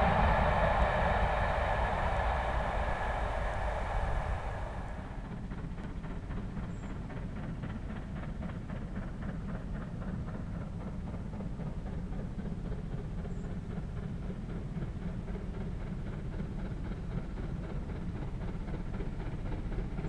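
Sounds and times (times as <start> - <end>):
low rumble: 0.0 - 5.4
steam locomotive exhaust beating: 0.0 - 5.6.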